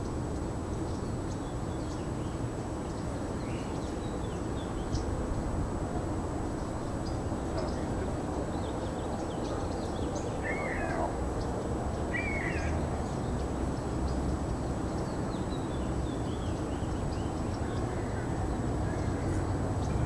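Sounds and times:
small birds chirping: 0.0s - 5.4s, 6.5s - 20.0s
low rumble and hiss: 0.0s - 20.0s
bird looping calls: 7.0s - 15.3s.

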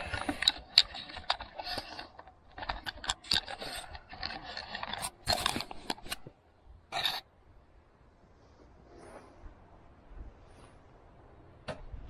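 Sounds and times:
objects clicking and knocking: 0.0s - 7.2s.

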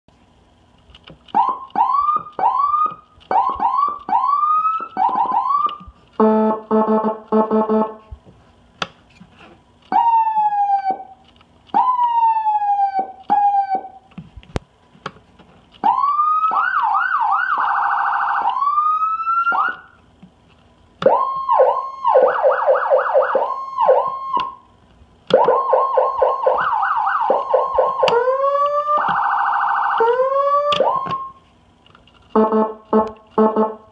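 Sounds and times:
electronic siren: 1.3s - 8.0s, 9.9s - 14.1s, 15.8s - 20.0s, 21.0s - 24.6s, 25.3s - 31.4s, 32.3s - 33.9s.

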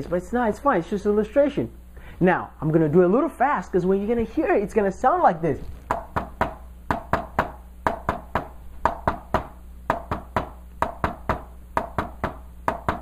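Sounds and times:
tapping on a whiteboard: 5.9s - 13.0s.

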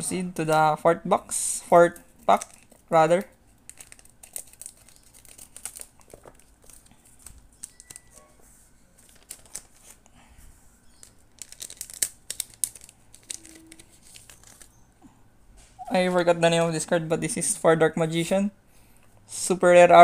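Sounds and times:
foil pack crinkling: 2.2s - 8.1s, 9.0s - 10.1s, 10.9s - 14.7s
cards sliding out of wrapper: 11.0s - 14.7s.

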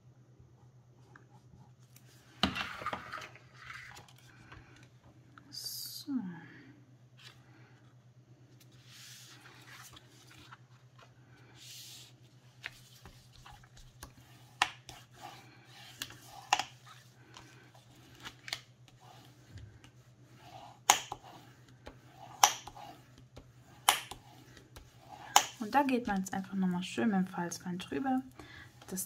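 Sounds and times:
paper rustling and sliding: 1.8s - 4.9s, 8.6s - 23.2s.

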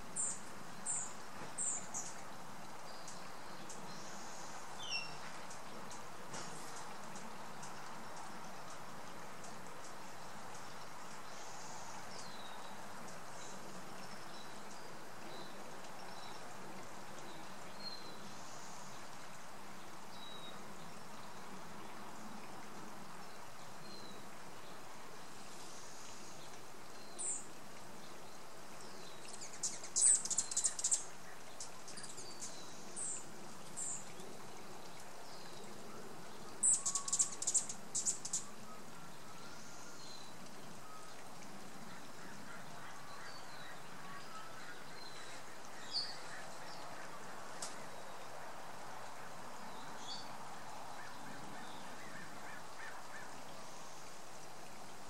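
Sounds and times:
steady background hiss: 0.0s - 55.0s
birds chirping: 36.6s - 41.2s.

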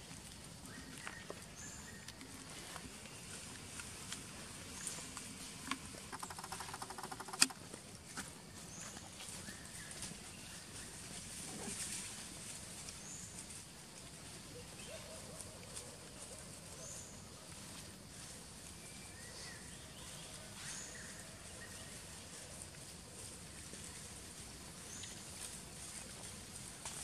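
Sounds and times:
animals chewing: 0.0s - 10.0s
small clicks on metal plate: 5.7s - 7.6s.

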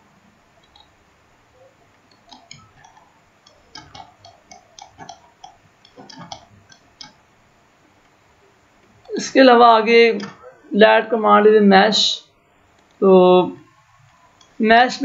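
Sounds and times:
computer mouse clicks: 2.0s - 7.2s.

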